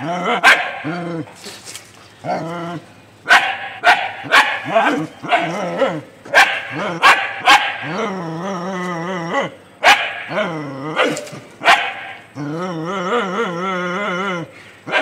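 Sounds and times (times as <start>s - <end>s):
drawn-out growling cries: 0.0s - 1.4s, 4.6s - 11.4s, 12.0s - 15.0s
dog barking: 0.4s - 1.0s, 3.2s - 8.0s, 9.8s - 10.4s, 11.0s - 12.2s.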